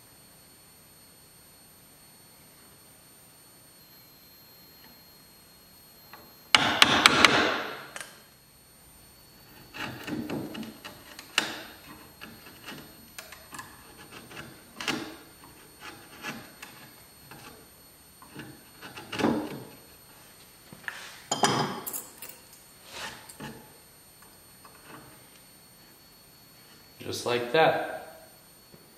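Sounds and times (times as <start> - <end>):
chisel scraping wood: 9.4 - 20.0, 22.8 - 23.7, 24.6 - 25.3.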